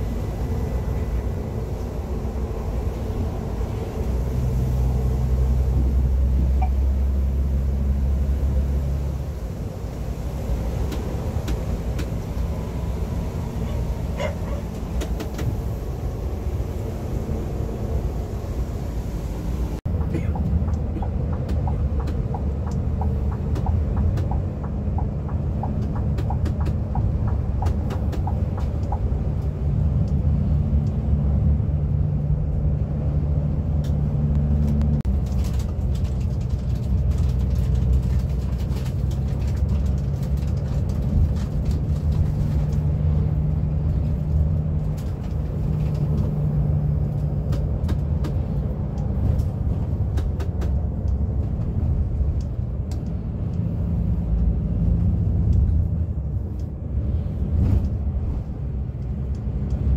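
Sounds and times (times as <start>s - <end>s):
bus engine hum: 0.0s - 59.9s
road noise: 0.0s - 59.9s
rattles and clicks: 19.9s - 30.2s, 33.8s - 43.2s, 43.9s - 56.7s.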